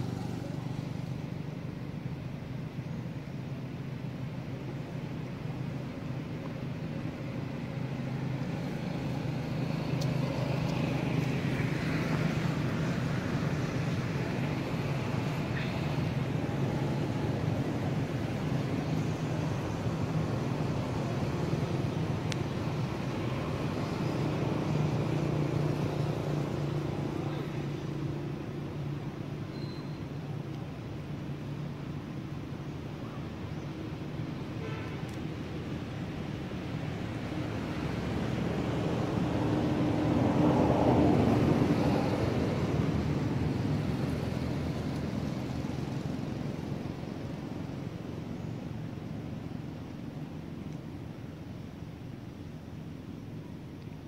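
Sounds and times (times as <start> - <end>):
vehicle passing by: 0.0 - 1.3, 7.6 - 28.6, 36.3 - 47.9
low engine hum: 0.0 - 54.0.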